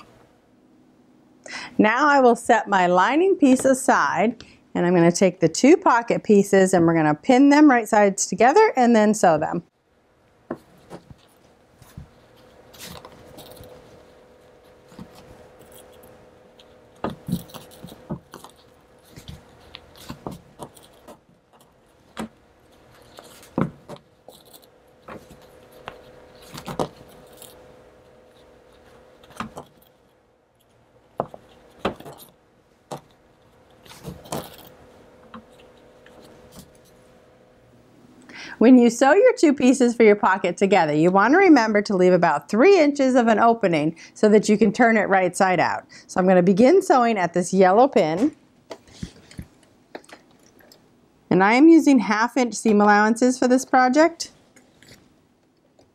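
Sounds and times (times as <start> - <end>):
faint steady hum: 0.0 - 55.9
canvas fabric rustling: 10.5 - 30.6.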